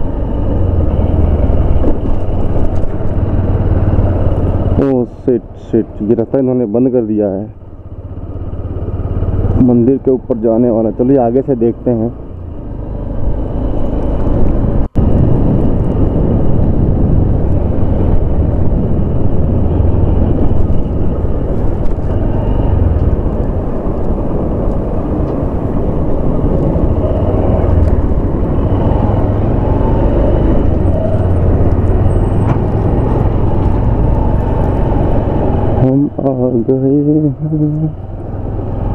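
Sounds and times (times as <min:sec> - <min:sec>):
motorcycle engine running: 0:00.0 - 0:06.0, 0:06.7 - 0:38.9
wind rushing over microphone: 0:12.3 - 0:38.9.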